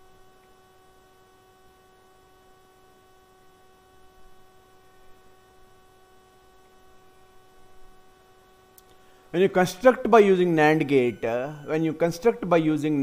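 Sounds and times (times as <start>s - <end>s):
electrical hum: 0.0s - 13.0s
low background hiss: 0.0s - 13.0s.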